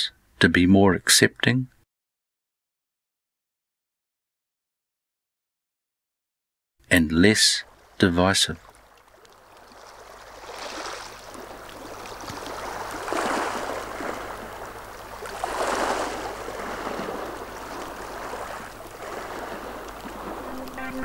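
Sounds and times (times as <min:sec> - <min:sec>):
water washing in gentle waves: 0:07.6 - 0:21.0.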